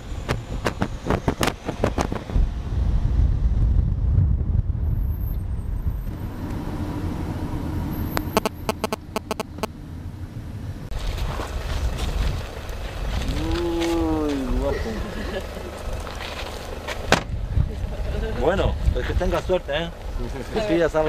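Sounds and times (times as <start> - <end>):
road and engine rumble: 0.0 - 21.0
sharp clicks: 8.2 - 9.7.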